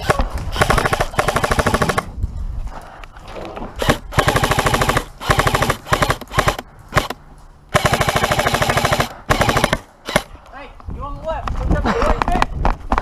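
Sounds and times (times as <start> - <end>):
airsoft rifle full-auto bursts: 0.0 - 2.1, 3.8 - 10.3.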